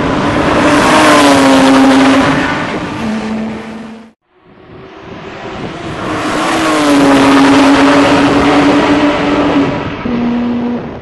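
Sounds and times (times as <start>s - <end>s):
sports car passing at high revs: 0.2s - 11.0s.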